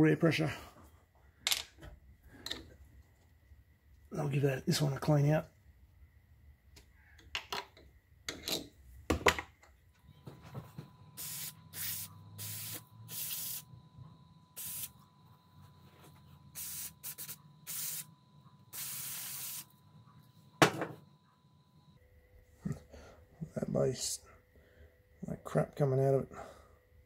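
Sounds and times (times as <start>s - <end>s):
aerosol can hissing: 11.2s - 13.7s, 14.6s - 14.9s, 16.5s - 18.1s, 18.7s - 19.7s.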